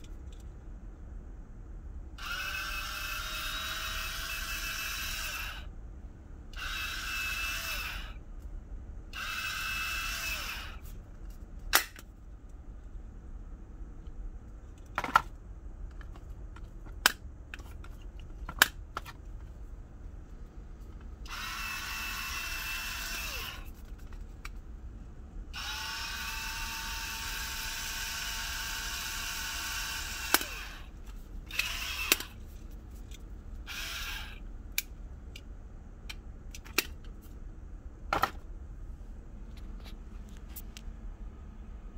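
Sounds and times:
electric pepper mill motor whirring: 2.2 - 5.7, 6.6 - 8.2, 9.2 - 10.8, 21.2 - 23.7, 25.6 - 30.9, 31.5 - 32.4, 33.6 - 34.4.

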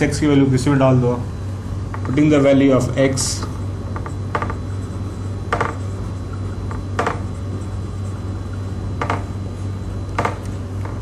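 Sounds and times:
low hum: 0.0 - 11.0
marker squeaking on whiteboard: 3.8 - 8.4.

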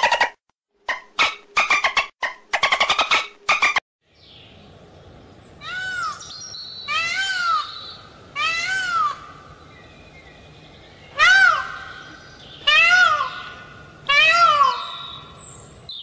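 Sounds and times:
peacock calling: 5.4 - 16.0.

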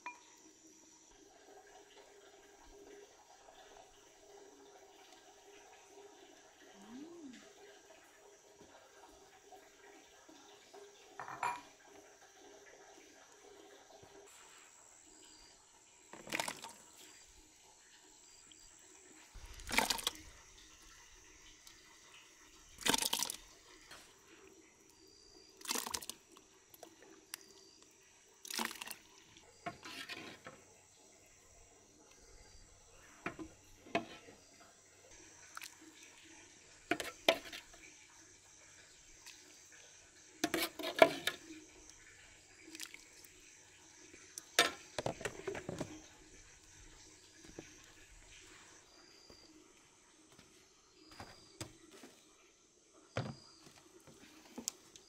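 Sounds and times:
wet splash of pouring: 16.1 - 17.9, 18.6 - 24.1, 25.5 - 27.8, 28.4 - 30.4, 40.4 - 49.4
ladle scooping porridge: 18.5 - 24.4, 25.6 - 30.8, 33.0 - 34.6, 35.4 - 38.0, 40.4 - 43.4, 44.2 - 49.5.

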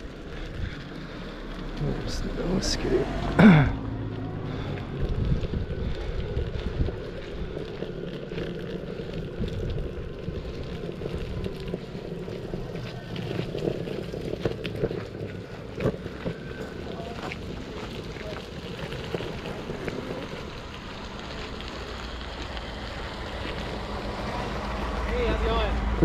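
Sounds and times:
skateboard wheels rumbling: 0.0 - 26.0
wind buffeting microphone: 4.1 - 21.2.

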